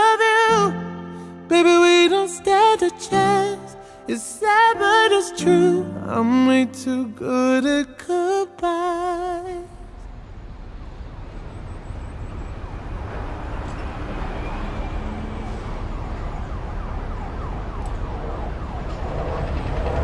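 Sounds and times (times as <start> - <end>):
siren sweeping up and down: 10.4 - 20.0.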